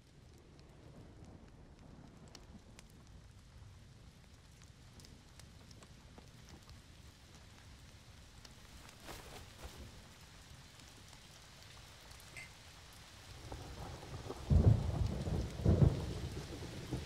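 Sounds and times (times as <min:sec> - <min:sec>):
rain falling: 0:00.0 - 0:17.0
thunder rumbles: 0:13.3 - 0:17.0.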